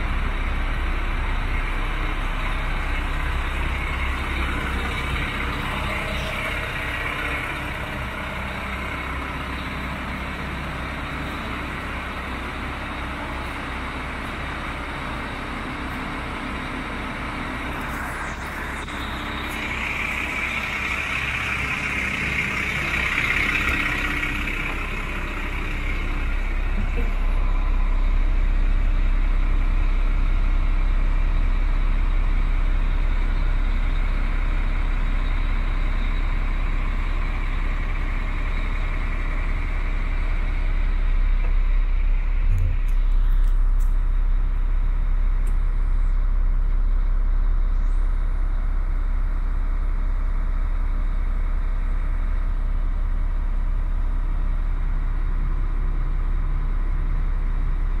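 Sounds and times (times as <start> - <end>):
diesel truck engine idling: 0.0 - 58.0.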